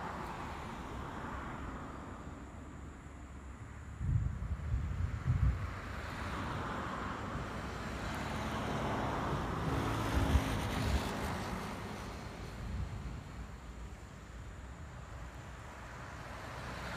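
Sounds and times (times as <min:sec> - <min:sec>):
wind buffeting microphone: 0:03.9 - 0:06.0.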